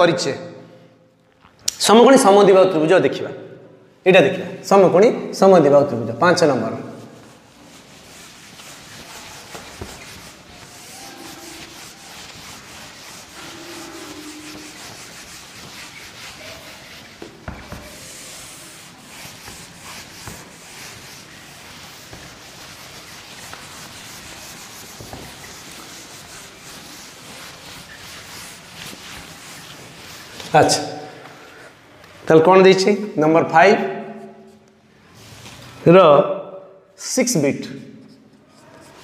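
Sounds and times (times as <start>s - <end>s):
eraser rubbing on whiteboard: 6.8s - 31.7s, 38.0s - 39.0s.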